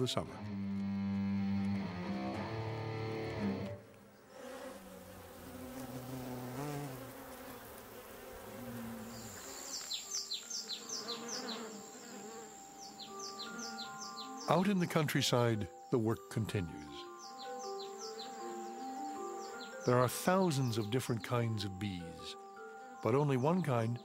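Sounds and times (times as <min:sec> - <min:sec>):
background music: 0:00.0 - 0:04.0, 0:08.8 - 0:24.0
hornet buzzing in flight: 0:00.0 - 0:14.6, 0:17.0 - 0:20.8.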